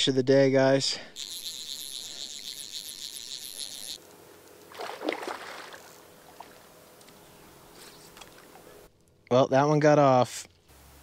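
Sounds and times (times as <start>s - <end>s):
fishing reel drag buzzing: 0.8s - 8.9s
water splash: 4.7s - 6.6s.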